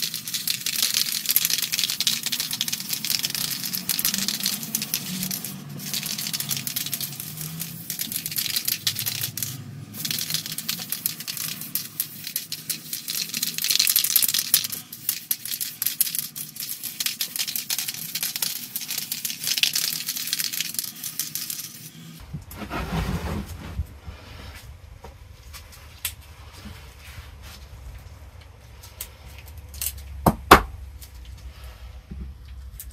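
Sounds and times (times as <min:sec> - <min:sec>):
spray can clicks and rattles: 0:00.0 - 0:21.9
spray paint can hissing: 0:00.0 - 0:22.0
low rumble of handling: 0:22.2 - 0:32.9.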